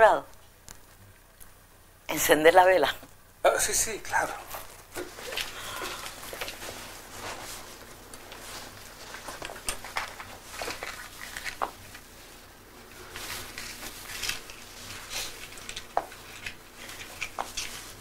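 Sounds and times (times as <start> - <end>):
faint steady hum: 0.0 - 18.0
paper rustling: 4.6 - 18.0.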